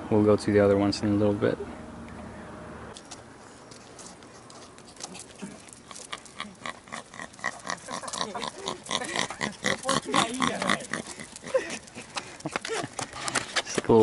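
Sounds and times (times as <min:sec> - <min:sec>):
small dog grunting: 0:05.1 - 0:12.1.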